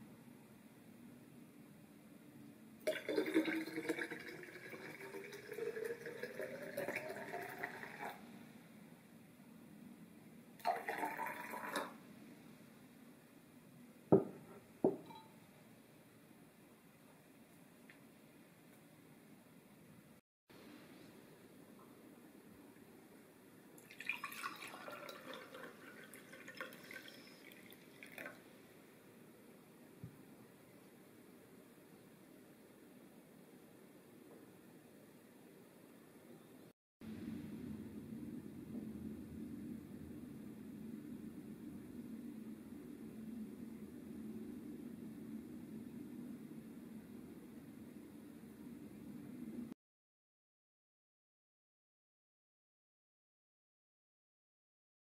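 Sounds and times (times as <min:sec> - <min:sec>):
water pouring into a glass carafe: 0:02.8 - 0:08.2, 0:10.6 - 0:12.0, 0:23.8 - 0:28.4
carafe set down knock: 0:14.1 - 0:15.1.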